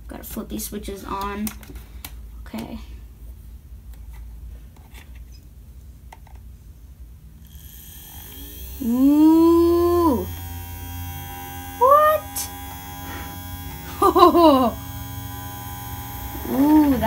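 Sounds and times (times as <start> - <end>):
small motors humming and whining: 7.4 - 17.0
person saying ooh: 8.8 - 10.3, 11.8 - 12.5.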